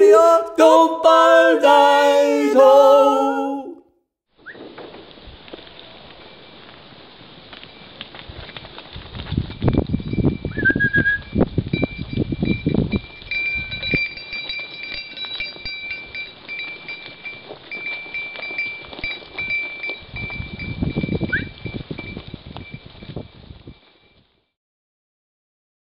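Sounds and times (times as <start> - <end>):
goat hooves thudding on dry ground: 11.5 - 23.7.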